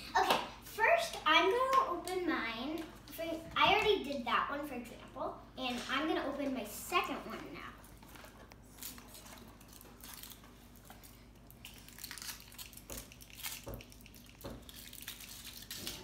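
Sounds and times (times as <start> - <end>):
foil wrapper crinkling: 7.9 - 16.0.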